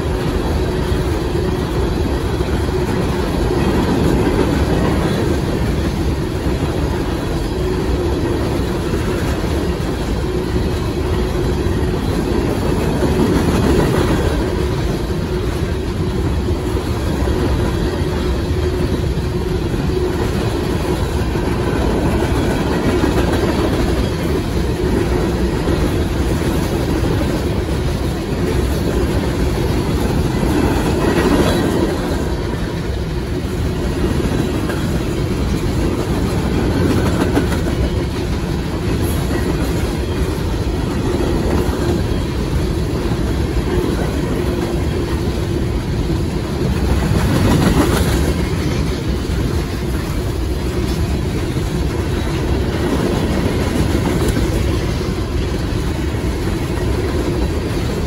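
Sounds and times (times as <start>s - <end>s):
freight train wheels on rails: 0.0s - 58.0s.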